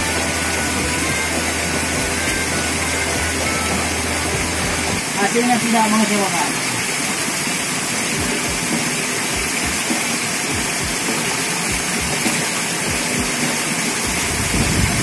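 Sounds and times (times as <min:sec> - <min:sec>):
water gushing through sluice gate: 0:00.0 - 0:15.0
splashes and knocks in water: 0:08.2 - 0:15.0.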